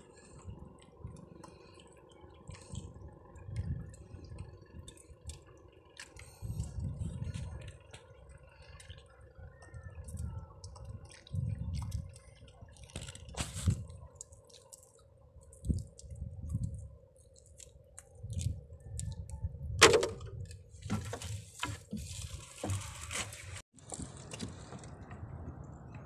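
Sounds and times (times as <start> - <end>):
water dripping and splashing: 10.0 - 19.2.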